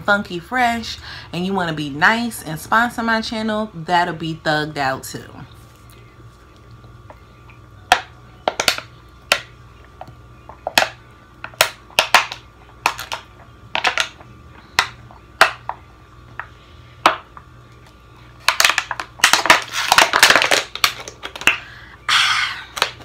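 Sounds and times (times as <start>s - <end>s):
plastic bottle crackling: 18.4s - 21.6s.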